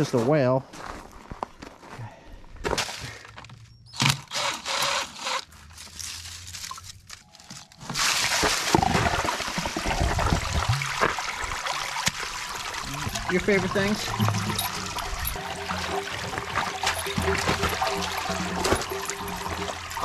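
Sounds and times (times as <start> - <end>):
cordless drill turning: 4.0 - 5.5
water gushing from drain pipe: 8.0 - 20.0.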